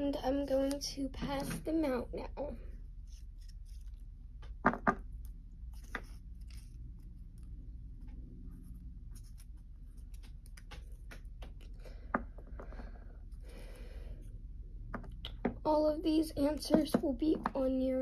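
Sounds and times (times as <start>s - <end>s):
low steady hum: 0.0s - 18.0s
paper sheets handled: 5.6s - 7.5s
plastic figurines tapping on wood: 16.7s - 17.6s.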